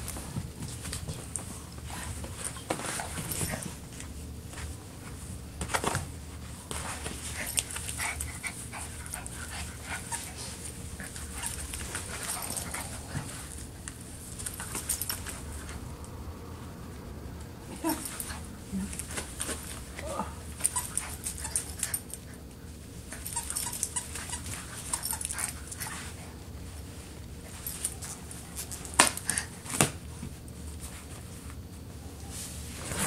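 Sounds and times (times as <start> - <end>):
dog scuffling with toy: 0.0 - 15.8, 23.0 - 31.6.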